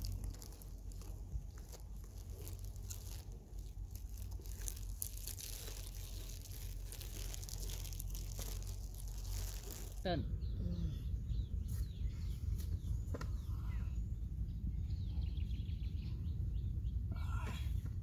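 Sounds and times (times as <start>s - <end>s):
dry grass and leaves crackling: 0.0s - 10.1s
steady low rumble: 0.0s - 18.0s.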